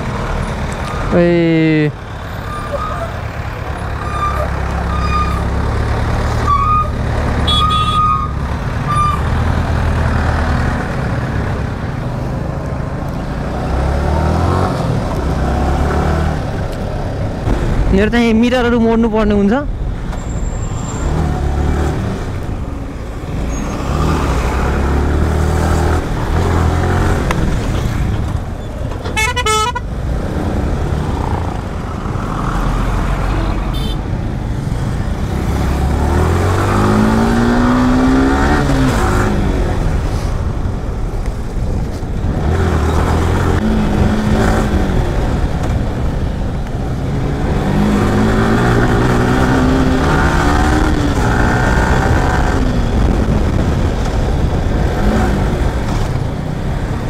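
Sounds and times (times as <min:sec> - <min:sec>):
traffic engines: 0:00.0 - 0:57.0
vehicle horn: 0:07.4 - 0:09.2, 0:29.2 - 0:29.9, 0:33.7 - 0:34.0.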